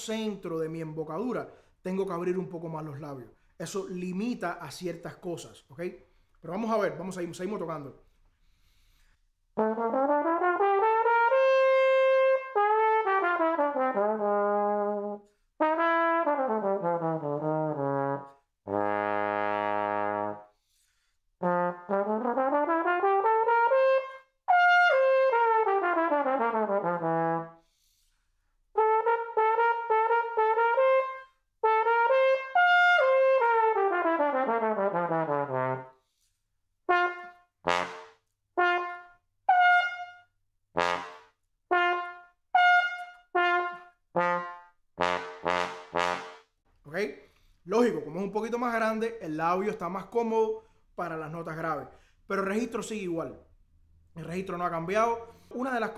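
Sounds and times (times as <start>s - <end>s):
solo trombone playing: 9.6s - 20.5s, 21.4s - 27.6s, 28.8s - 36.0s, 36.9s - 40.2s, 40.8s - 46.5s.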